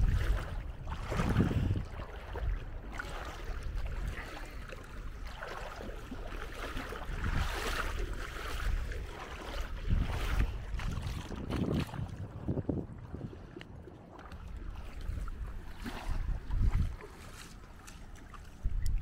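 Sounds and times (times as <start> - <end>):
wind buffeting microphone: 0.0 - 17.4, 18.4 - 19.0
feet wading through shallow water: 0.0 - 19.0.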